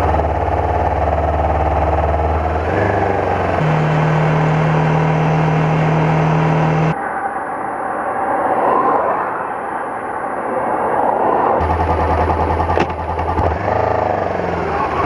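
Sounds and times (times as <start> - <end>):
motorcycle engine running: 0.0 - 7.0, 11.6 - 15.0.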